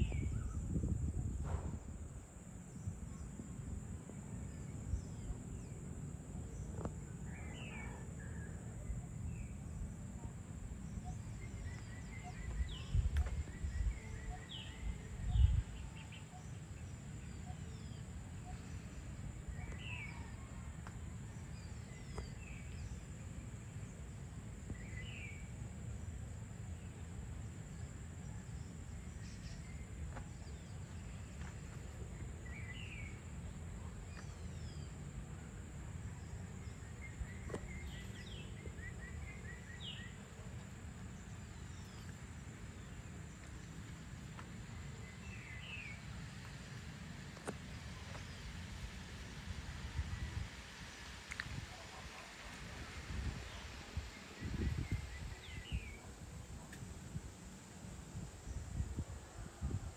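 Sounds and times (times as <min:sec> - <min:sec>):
birds chirping: 0:06.5 - 0:20.6.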